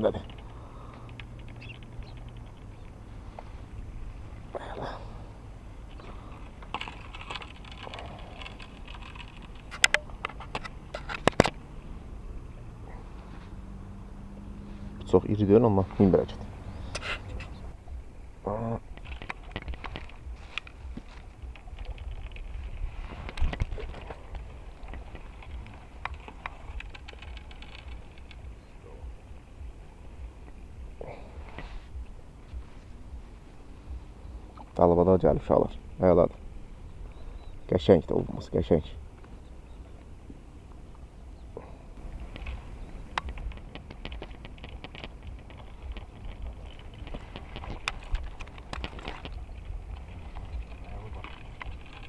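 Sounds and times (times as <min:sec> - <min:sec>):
fishing tackle clicks and rustles: 0:00.0 - 0:12.2, 0:18.8 - 0:35.7, 0:41.9 - 0:52.0
steady low rumble: 0:00.0 - 0:52.0.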